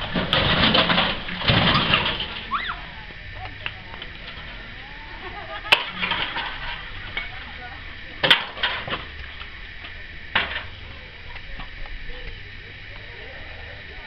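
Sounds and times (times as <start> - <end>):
metal clanks: 0.0 - 2.5, 5.7 - 7.4, 8.2 - 9.2
scrap metal clattering: 0.0 - 2.5, 5.7 - 7.4.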